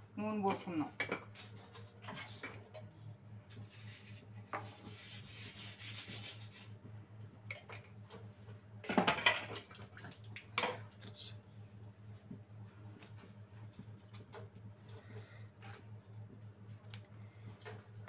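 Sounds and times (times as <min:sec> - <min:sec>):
kitchen utensils clattering: 0:08.9 - 0:09.6.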